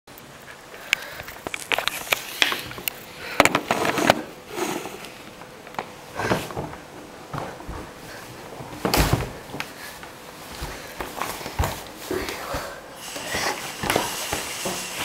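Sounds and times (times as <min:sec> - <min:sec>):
bare footstep on wooden floor: 0:08.6 - 0:12.7.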